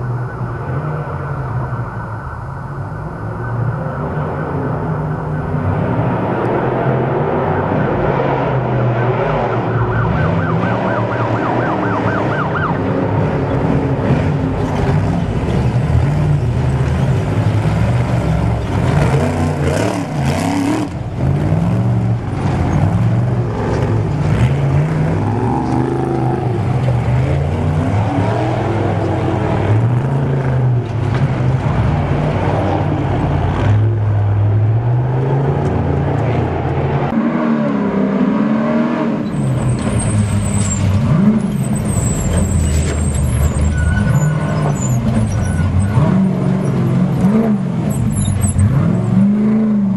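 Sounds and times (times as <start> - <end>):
warning siren warbling: 0.0 - 13.6
truck engine revving: 3.7 - 49.9.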